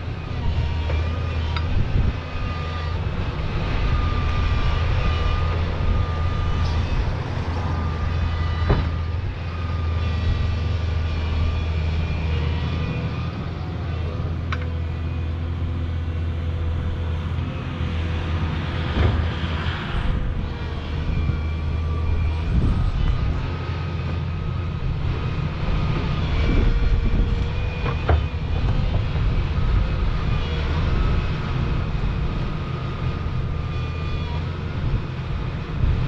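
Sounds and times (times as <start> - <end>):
excavator diesel engine running: 0.0 - 36.0
hydraulic whine: 0.0 - 36.0.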